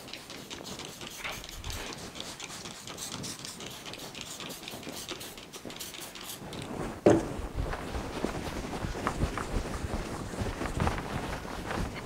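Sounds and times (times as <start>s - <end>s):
cloth wiping whiteboard: 0.0s - 12.0s
loud thump: 7.0s - 7.4s.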